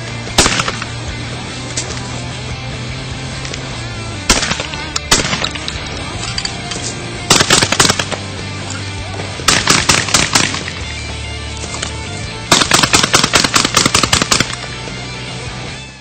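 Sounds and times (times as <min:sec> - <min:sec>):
shotgun firing: 0:00.4 - 0:01.1, 0:04.3 - 0:05.9, 0:07.3 - 0:08.3, 0:09.4 - 0:11.0, 0:12.5 - 0:14.7.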